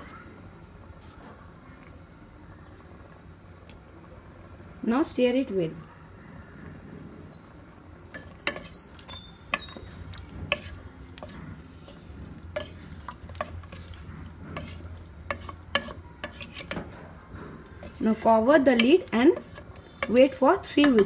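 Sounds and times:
wooden spoon stirring thick mixture: 8.0s - 21.0s
spoon knocking and scraping metal pot: 8.1s - 21.0s.

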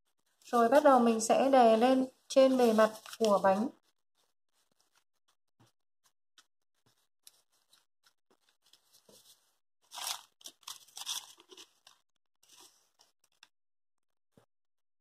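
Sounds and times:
plastic gloves and leaves rustling: 0.4s - 3.7s, 9.9s - 12.0s.

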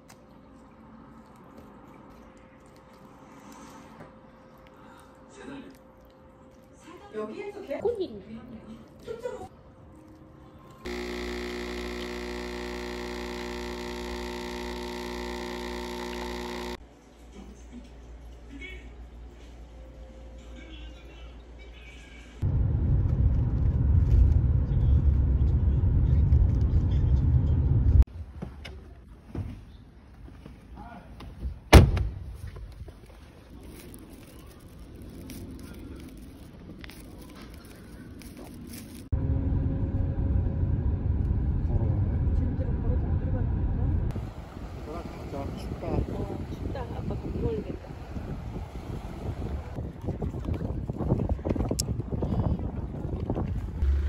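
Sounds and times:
coffee machine humming: 10.9s - 16.8s
plastic bag rustling: 32.9s - 39.1s.

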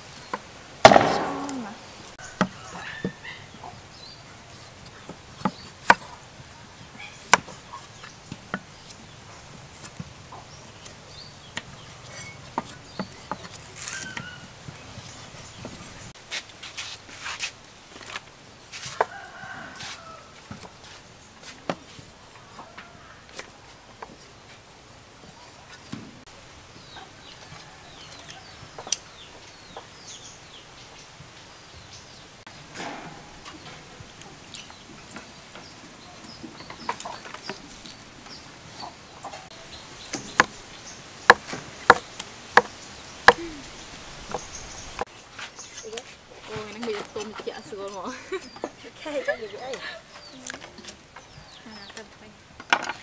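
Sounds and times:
chickens chirping: 0.2s - 9.6s
cleaver cutting root knocks: 40.1s - 40.6s.

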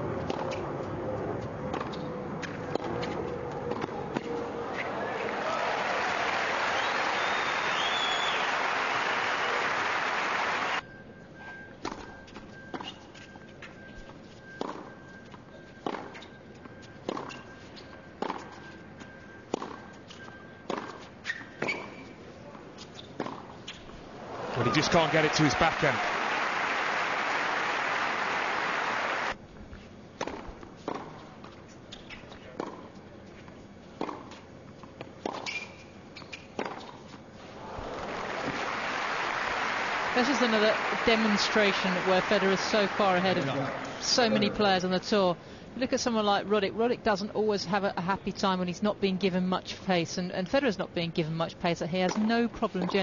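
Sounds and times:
crowd applause: 4.4s - 10.8s, 24.1s - 29.4s, 37.4s - 44.6s
shoe squeak: 11.4s - 22.2s, 22.8s - 24.0s, 35.4s - 37.1s.

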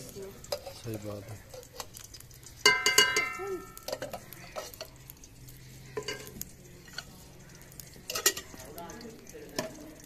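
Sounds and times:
metal ladle clinking on pot: 2.6s - 4.9s, 6.0s - 7.2s, 7.9s - 8.8s.

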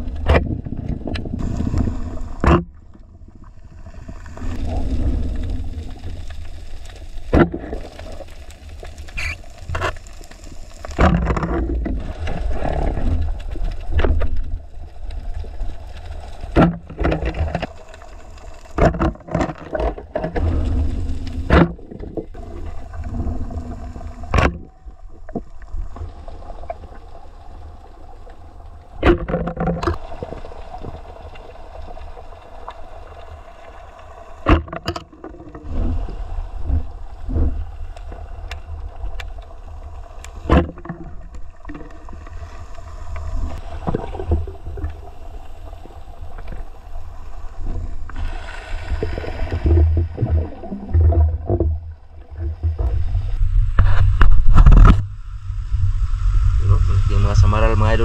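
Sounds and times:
underwater rumble of moving water: 0.0s - 58.0s
sharp underwater knocks and clicks: 0.1s - 3.0s, 10.8s - 15.2s, 16.3s - 18.0s, 18.6s - 22.4s, 24.3s - 25.5s, 29.0s - 31.0s, 34.4s - 35.9s, 40.2s - 42.0s, 49.5s - 55.1s.

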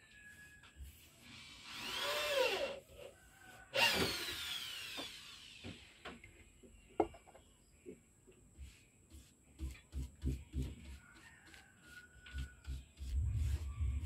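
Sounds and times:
power tool motor whining: 3.7s - 5.7s.

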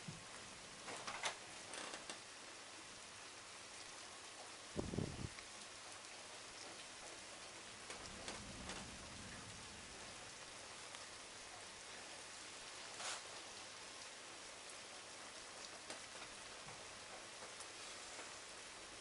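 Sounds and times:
raindrops clicking: 0.0s - 2.3s, 4.3s - 11.7s, 12.8s - 19.0s
rain hissing: 0.0s - 19.0s
low thunder rumble: 4.8s - 5.3s, 7.8s - 10.9s.

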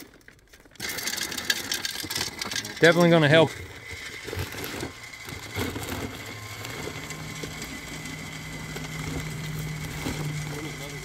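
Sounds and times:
engine idling: 5.5s - 11.0s.

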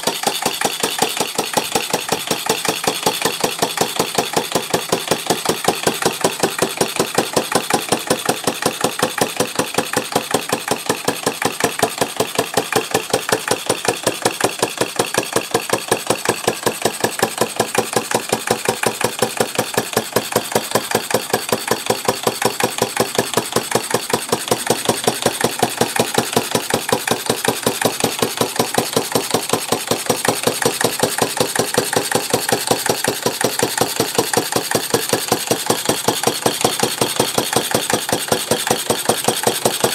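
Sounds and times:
antique gas engine running: 0.0s - 39.9s.

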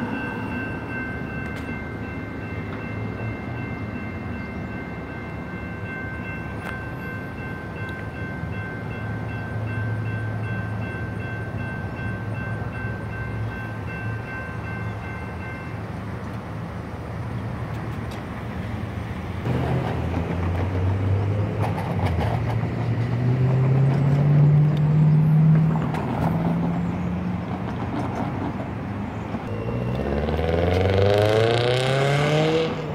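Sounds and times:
car engines accelerating past: 29.5s - 32.9s.

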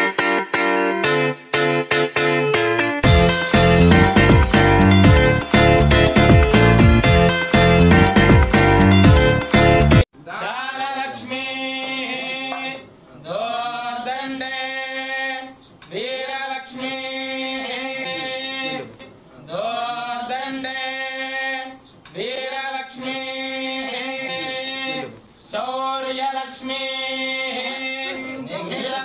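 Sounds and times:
person singing a hymn: 10.2s - 29.0s.

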